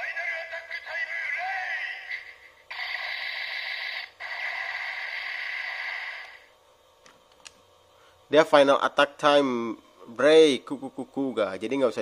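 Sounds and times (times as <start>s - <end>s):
long electronic buzzing: 2.5s - 6.5s.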